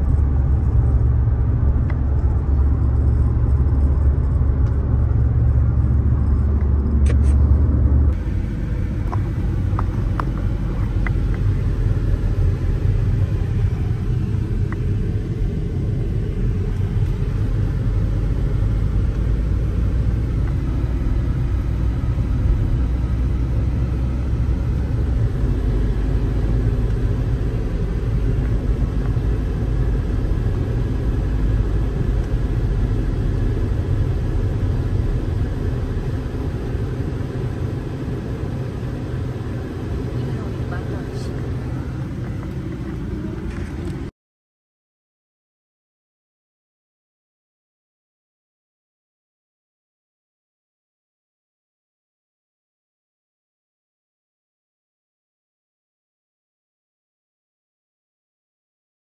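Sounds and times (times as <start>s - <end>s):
car cabin road and engine rumble: 0.0s - 44.1s.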